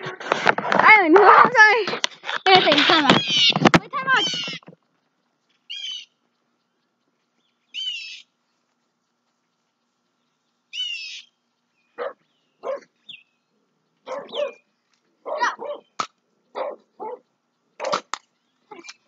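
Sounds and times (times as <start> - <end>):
dog barking and yelping: 1.2 - 1.6, 12.0 - 12.9, 14.0 - 18.1.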